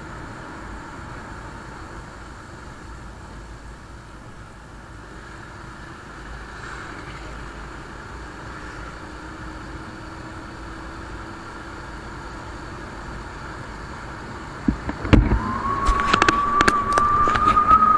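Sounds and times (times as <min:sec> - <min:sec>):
wind and road noise: 0:00.0 - 0:17.9
high rising tone: 0:15.2 - 0:17.9.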